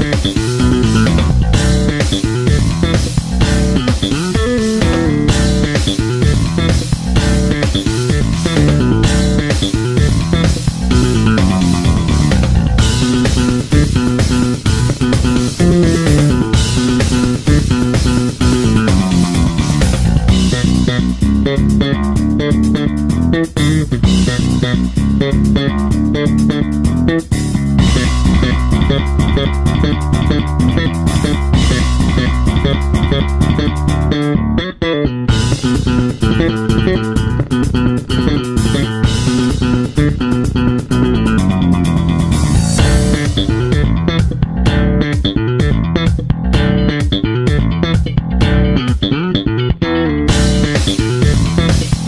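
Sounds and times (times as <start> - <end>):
bass and guitar music with beat: 0.0 - 52.0.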